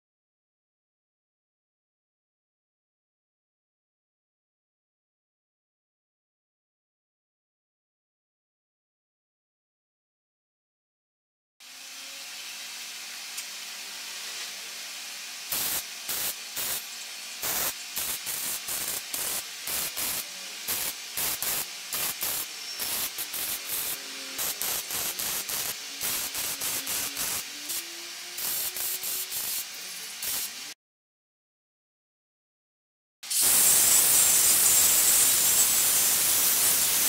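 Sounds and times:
steady hiss: 0:11.6 - 0:30.8, 0:33.2 - 0:37.0
electric arc welding bursts: 0:12.4 - 0:30.8, 0:33.2 - 0:37.0.

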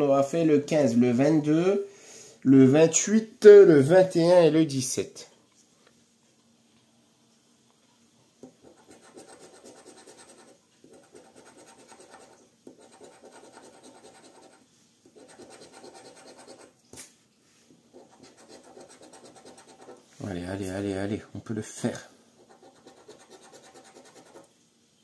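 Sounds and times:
coin scraping scratch card: 0:08.6 - 0:16.7, 0:17.9 - 0:20.0, 0:22.4 - 0:24.5.

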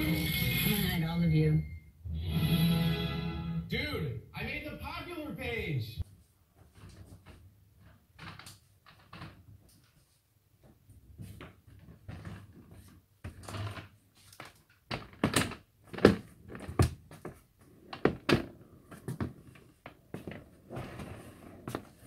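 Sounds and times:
walker wheels on wooden floor: 0:06.6 - 0:22.0
knocks and clunks of walker frame: 0:11.2 - 0:22.0.

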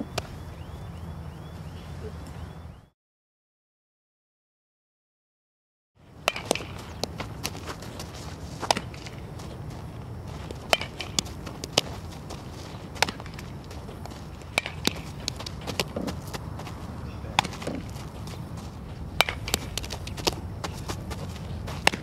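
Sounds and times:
low outdoor noise: 0:00.0 - 0:02.9, 0:06.0 - 0:22.0
footsteps on dirt: 0:06.3 - 0:22.0.

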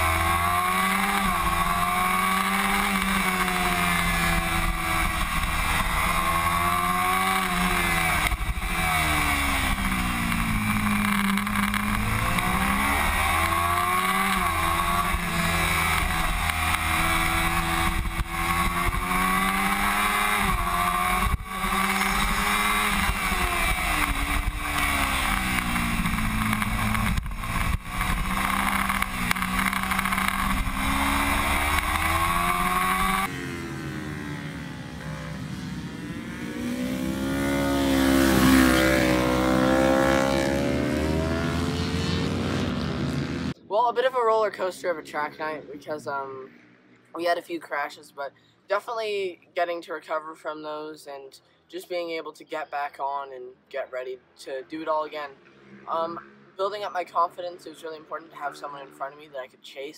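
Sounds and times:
motorcycle engine accelerating: 0:00.0 - 0:43.7, 0:55.3 - 0:56.6.

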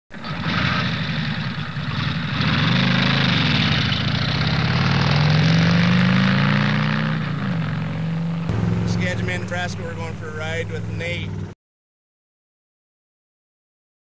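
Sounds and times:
vehicle engine running: 0:00.1 - 0:11.6.

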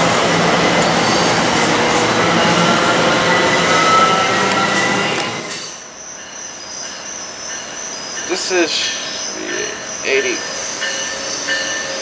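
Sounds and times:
high insect chirping: 0:05.4 - 0:12.0.

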